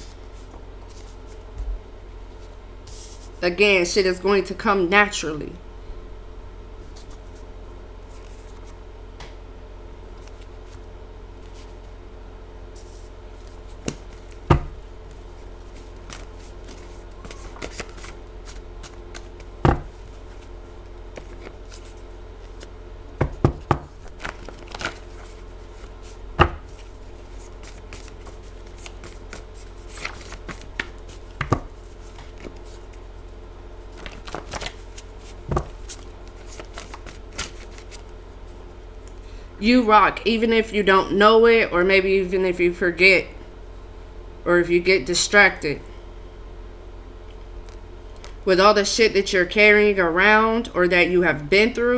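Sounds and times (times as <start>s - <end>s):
steady low hum: 0.0s - 51.9s
card deck tapping on table: 19.7s - 19.9s, 23.2s - 23.9s, 26.4s - 26.7s, 31.4s - 31.7s.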